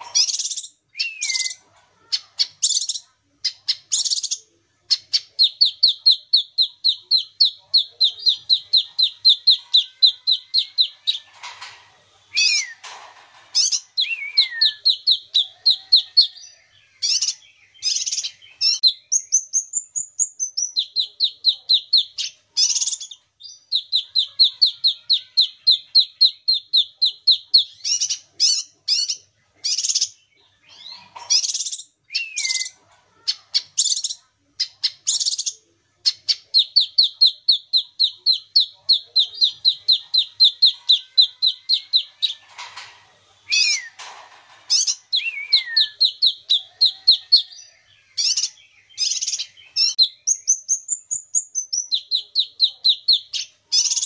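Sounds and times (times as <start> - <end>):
bird singing: 0.0 - 11.6, 12.3 - 42.9, 43.5 - 54.0.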